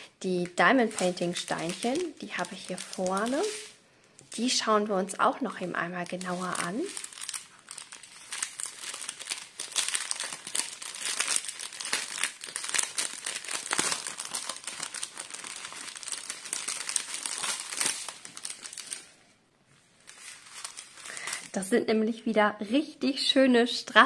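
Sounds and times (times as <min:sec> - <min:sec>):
plastic bags crinkling: 0:00.4 - 0:04.8, 0:05.5 - 0:19.2, 0:20.0 - 0:21.6.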